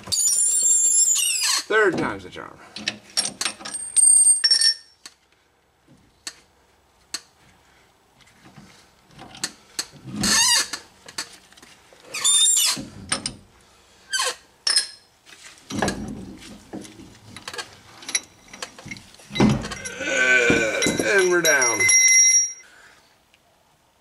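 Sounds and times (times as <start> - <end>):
metal parts squealing: 0.0 - 1.7, 12.1 - 12.8, 19.4 - 22.6.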